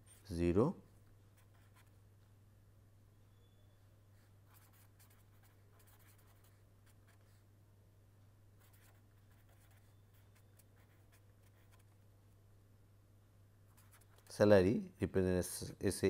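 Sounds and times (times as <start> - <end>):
pen scratching on paper: 1.4 - 1.9, 4.4 - 7.4, 8.6 - 12.0, 13.7 - 14.3.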